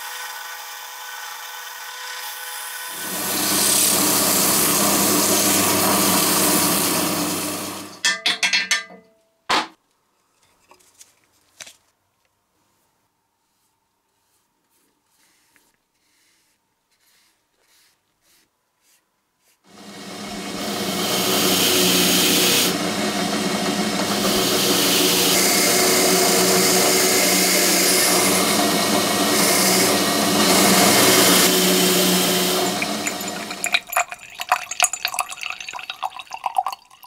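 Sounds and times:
drill motor hum: 2.7 - 7.9, 19.7 - 33.6
brush strokes spreading stain: 12.6 - 19.6.

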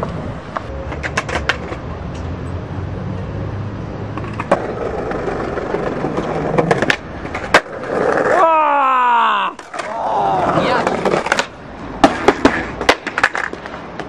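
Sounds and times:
skateboard clicks: 0.0 - 2.2, 4.1 - 8.4, 9.5 - 14.0
skateboard wheels rolling on stone: 0.0 - 2.3, 4.0 - 14.0
skateboard knock: 4.2 - 8.3, 9.6 - 14.0.

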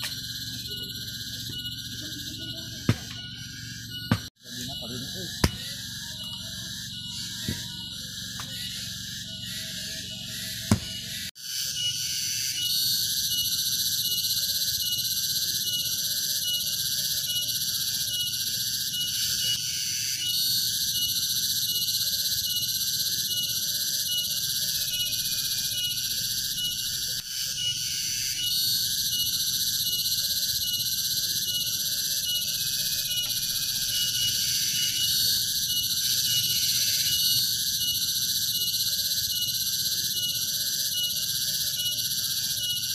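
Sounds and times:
low pulsing call: 0.0 - 11.3
high-pitched insect chorus: 0.0 - 42.9.

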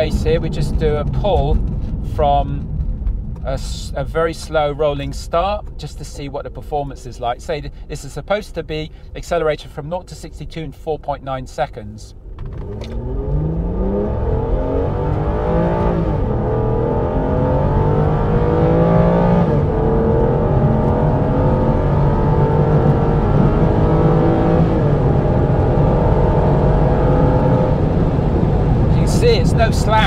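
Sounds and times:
car engine accelerating hard: 12.3 - 30.0.

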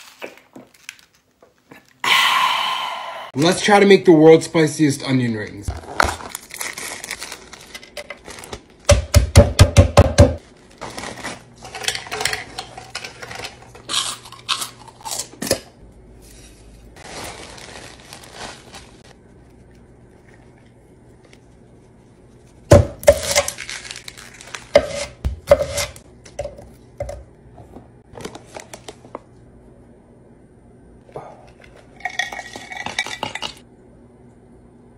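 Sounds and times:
chip bag crinkling: 5.8 - 8.9, 10.4 - 13.1, 17.0 - 19.2, 23.1 - 24.8
utensils clinking against bowls: 11.6 - 14.8, 31.6 - 33.6.

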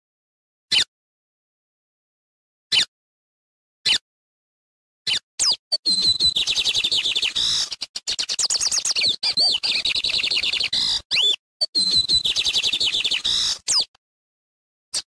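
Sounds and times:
bird singing whistles and trills: 5.1 - 14.0.

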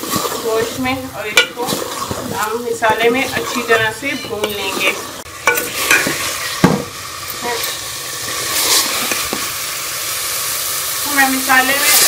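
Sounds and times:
spoon scraping a pot: 0.0 - 6.6
food sizzling in a pot: 0.0 - 12.0
spoon knocking against pot: 1.4 - 1.8, 5.4 - 6.9.

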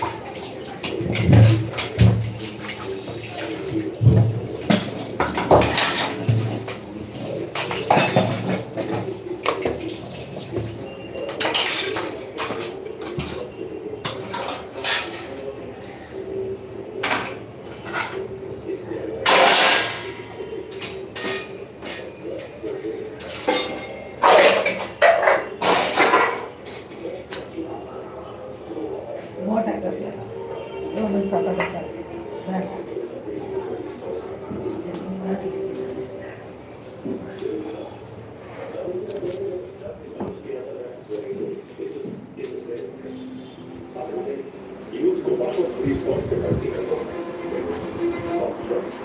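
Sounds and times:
water running and splashing: 0.0 - 12.3
metal pots clanking and scraping: 0.0 - 15.4, 19.2 - 22.6, 23.2 - 27.0.

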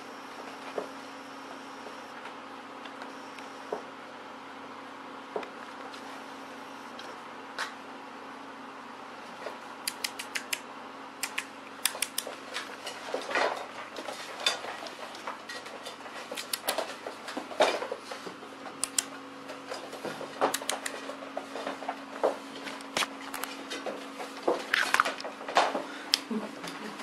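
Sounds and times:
steady low hum: 0.0 - 27.0
claws clicking on hard floor: 9.9 - 10.6, 11.2 - 12.3, 20.4 - 21.1.

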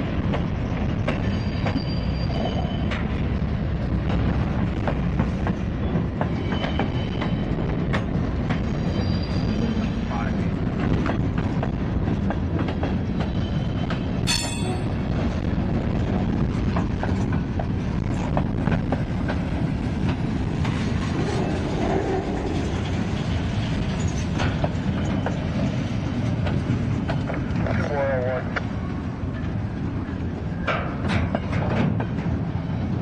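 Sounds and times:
steel wheels rumbling on rail: 0.0 - 33.0
high wheel squeal: 1.2 - 3.0, 8.8 - 9.9.

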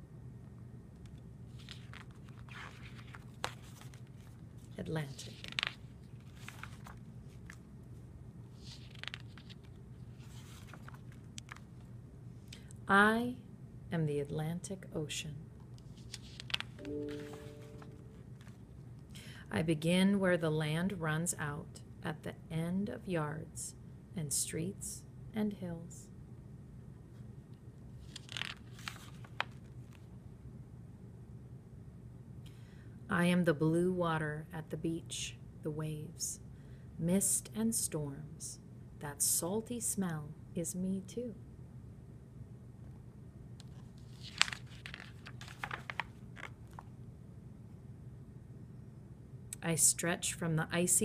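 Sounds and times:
low steady hum: 0.0 - 51.0
paper rustling and light taps: 1.5 - 7.6, 8.6 - 11.8, 15.8 - 18.6, 28.0 - 30.1, 43.6 - 46.9
book pages turning: 1.5 - 7.7, 8.5 - 11.9, 15.8 - 18.7, 28.0 - 30.1, 43.6 - 46.9.

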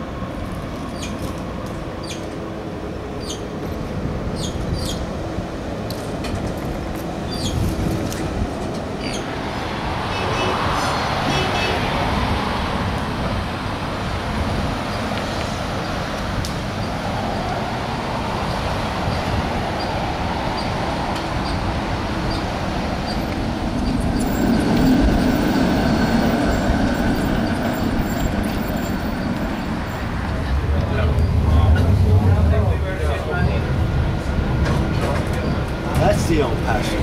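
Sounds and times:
car traffic: 0.0 - 37.0
streetcars rolling past: 0.0 - 37.0
steady whine: 23.3 - 37.0.

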